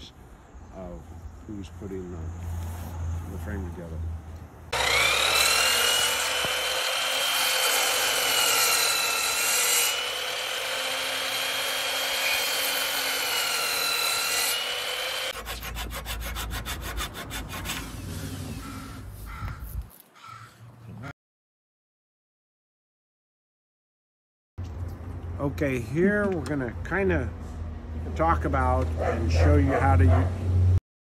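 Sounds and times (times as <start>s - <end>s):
miter saw motor whine: 4.7s - 15.3s.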